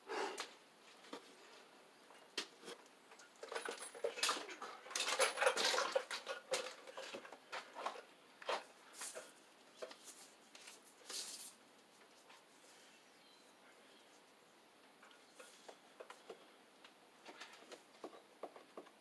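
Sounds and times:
cable scraping and rustling: 0:02.5 - 0:12.9.

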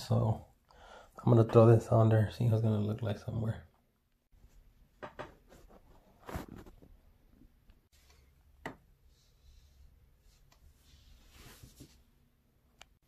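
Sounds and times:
soft handling rustling: 0:10.2 - 0:12.2.

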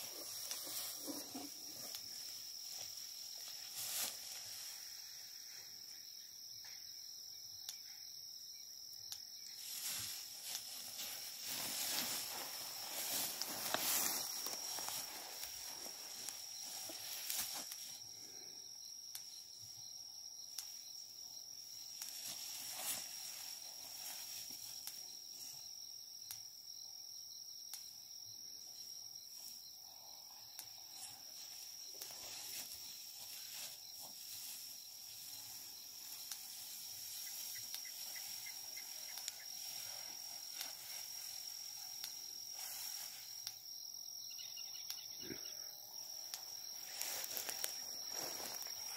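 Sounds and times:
rustles in dry grass: 0:00.0 - 0:05.9, 0:09.4 - 0:18.5, 0:20.6 - 0:25.7, 0:29.2 - 0:43.7, 0:46.0 - 0:48.9
insect chorus: 0:00.0 - 0:48.9.

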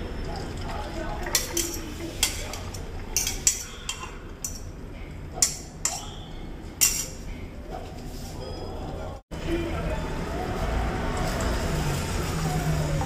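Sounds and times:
metal spoon clinking on ceramic bowl: 0:01.3 - 0:04.7.

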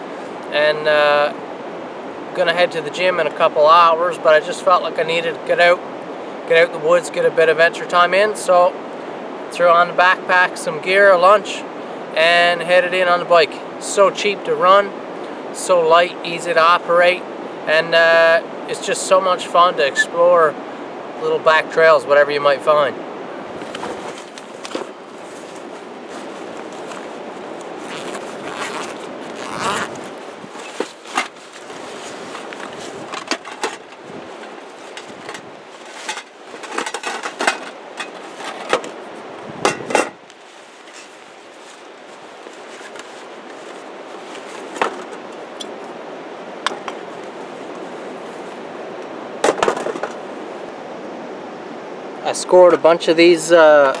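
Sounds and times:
rushing background noise: 0:22.8 - 0:54.0
nylon bag rustling: 0:23.5 - 0:39.3, 0:40.2 - 0:45.5.

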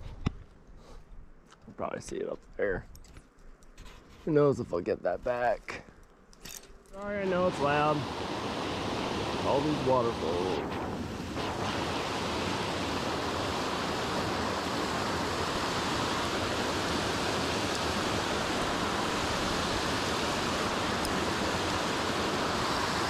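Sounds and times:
waterfall roaring: 0:07.0 - 0:10.7, 0:11.3 - 0:23.0.

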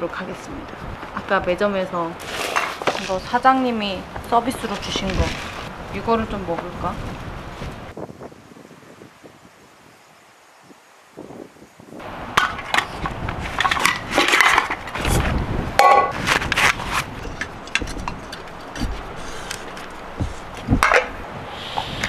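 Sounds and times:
plastic packaging crinkling and tearing: 0:04.6 - 0:05.7.

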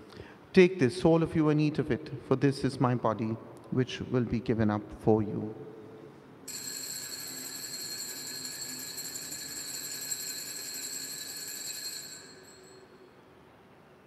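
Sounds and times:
altar bells ringing: 0:06.5 - 0:13.1.

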